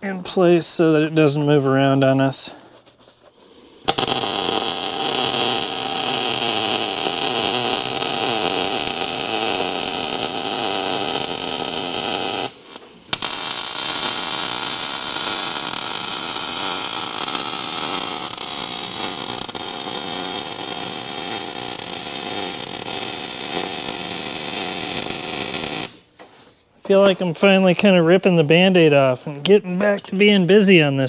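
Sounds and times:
welder arc crackling: 3.8 - 26.0.

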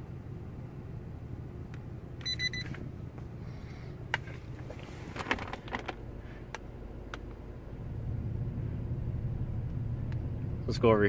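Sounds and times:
air conditioning blower: 0.0 - 11.0
truck engine hum: 0.0 - 11.0
short electronic beeps: 2.2 - 2.7.

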